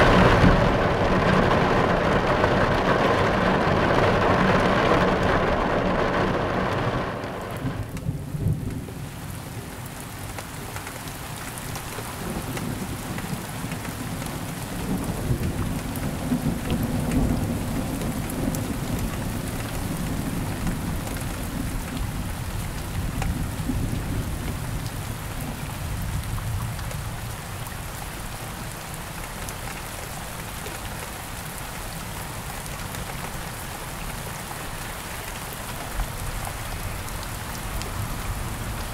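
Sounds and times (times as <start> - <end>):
rolling thunder: 0.0 - 9.0, 14.8 - 26.7
rain falling: 0.0 - 38.9.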